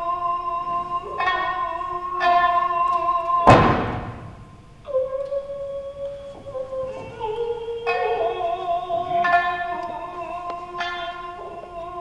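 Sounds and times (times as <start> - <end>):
plucked shamisen notes: 1.2 - 2.8, 7.8 - 12.0
loud thump: 3.5 - 4.7.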